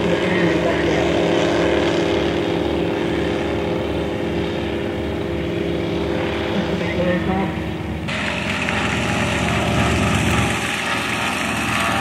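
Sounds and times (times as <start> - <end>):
light aircraft propeller engine: 0.0 - 12.0.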